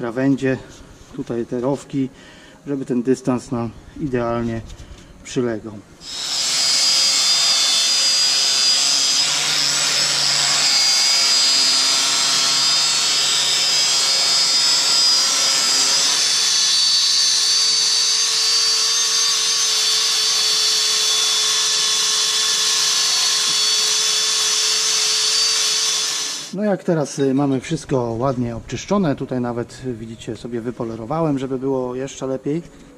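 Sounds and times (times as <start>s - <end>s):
angle grinder whining: 6.0s - 26.6s.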